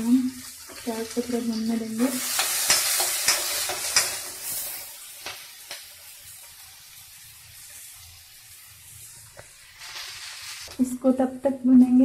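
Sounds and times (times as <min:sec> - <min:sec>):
onions sizzling in hot oil: 0:00.0 - 0:11.4
steel spatula clicking on pan: 0:02.3 - 0:04.6.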